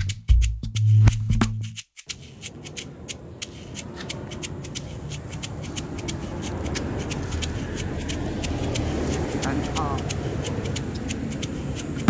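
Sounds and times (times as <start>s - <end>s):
rustling through long grass: 2.2s - 10.0s.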